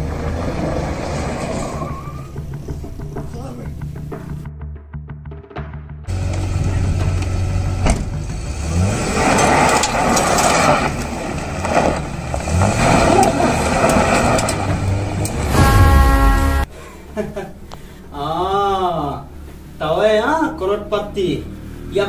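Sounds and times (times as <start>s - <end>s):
truck engine revving: 0.0s - 3.0s, 6.0s - 16.7s
tyres scrabbling on gravel: 9.2s - 15.5s.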